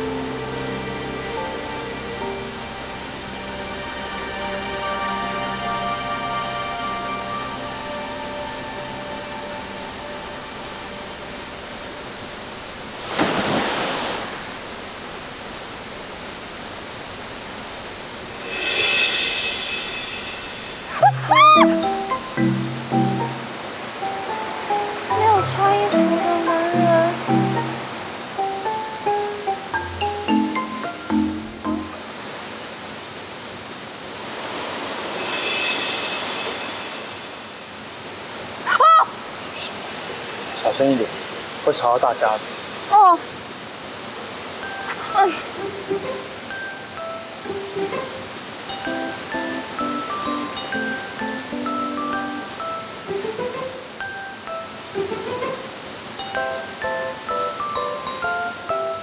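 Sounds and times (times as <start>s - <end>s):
waterfall rushing into pool: 0.0s - 59.0s
loud burst of noise: 18.2s - 21.0s, 34.8s - 38.6s.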